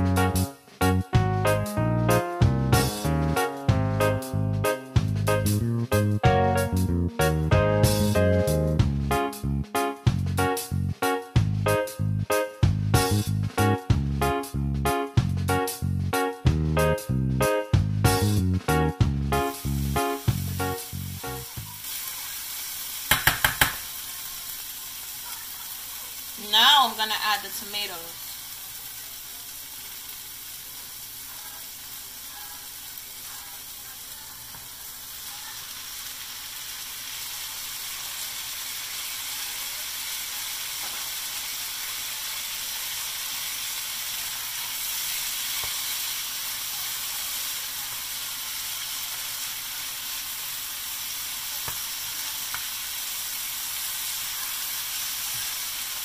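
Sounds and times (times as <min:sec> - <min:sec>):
vegetables sizzling in oil: 0:18.2 - 0:56.0
spatula tapping a pan: 0:23.1 - 0:24.0, 0:51.6 - 0:51.9, 0:52.5 - 0:52.7.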